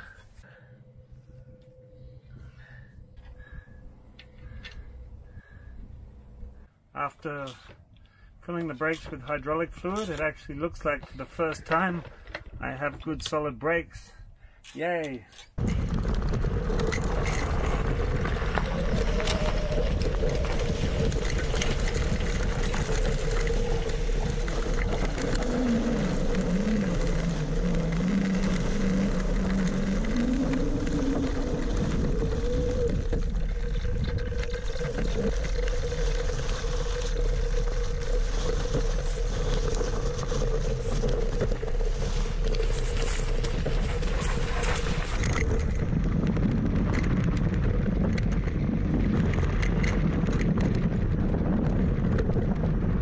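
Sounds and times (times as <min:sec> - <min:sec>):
low rising and falling tone: 0:15.6 - 0:53.0
tyres rumbling on dirt: 0:15.6 - 0:53.0
electric motor whine: 0:16.3 - 0:45.4.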